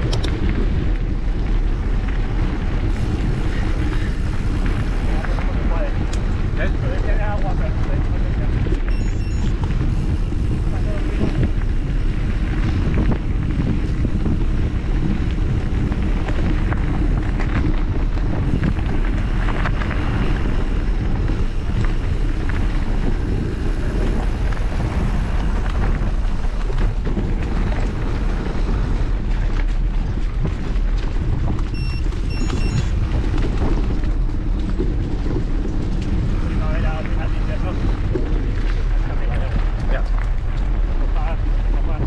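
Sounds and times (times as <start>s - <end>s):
bike tyres rolling on dirt: 0.0s - 42.0s
wind rushing over microphone: 0.0s - 42.0s.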